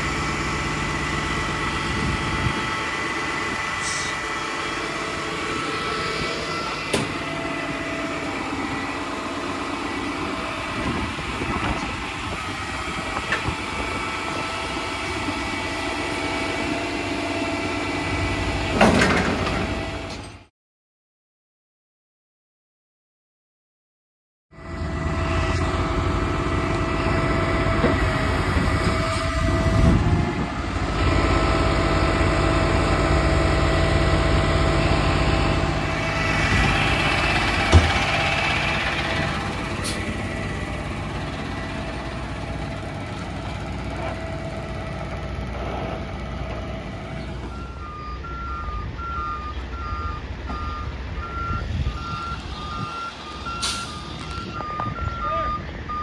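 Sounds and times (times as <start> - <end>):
truck engine running: 0.0 - 20.5, 24.6 - 56.0
reversing alarm beeping: 3.4 - 8.3, 44.4 - 56.0.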